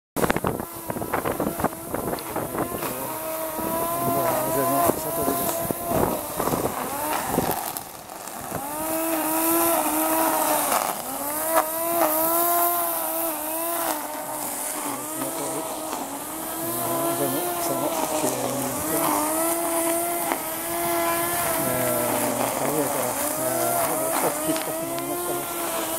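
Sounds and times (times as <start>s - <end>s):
electric string trimmer whining: 0.2s - 25.9s
steady hiss: 13.3s - 25.9s.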